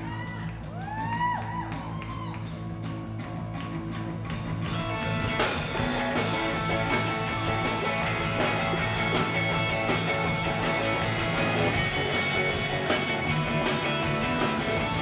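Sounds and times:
live rock band playing: 0.0 - 15.0.

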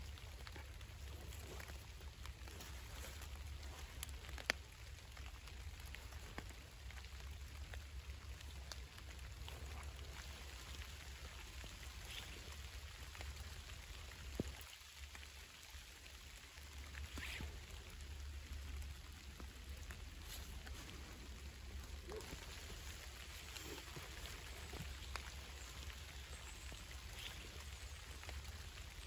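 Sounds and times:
faint steady hiss: 0.0 - 29.0
raindrops ticking on leaves: 0.0 - 29.0.

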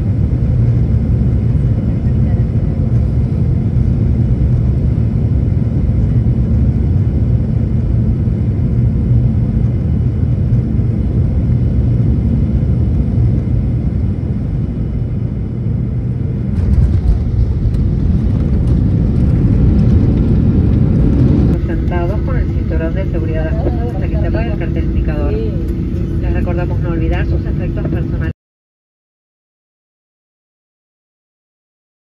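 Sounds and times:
airliner cabin engine rumble: 0.0 - 28.4
wheels rolling on runway: 16.6 - 21.6.

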